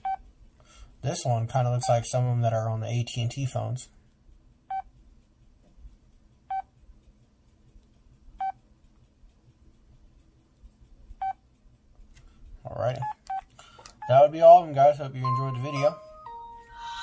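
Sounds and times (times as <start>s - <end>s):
phone keypad beeps: 11.2s - 11.4s, 13.0s - 14.3s, 15.2s - 17.0s.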